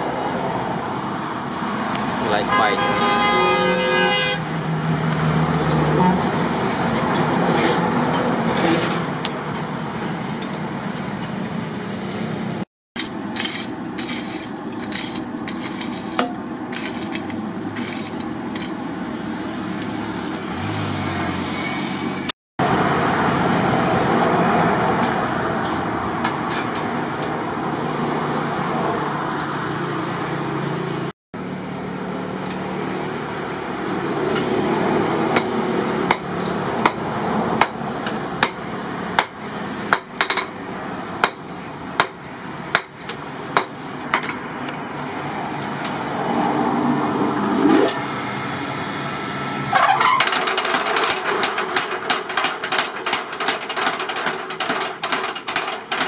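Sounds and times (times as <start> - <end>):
sharp metallic knocks: 49.8 - 56.0.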